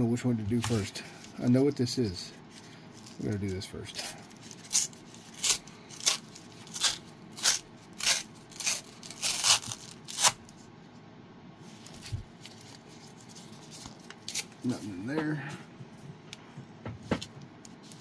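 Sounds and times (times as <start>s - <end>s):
packaging being scratched open: 4.2s - 10.5s.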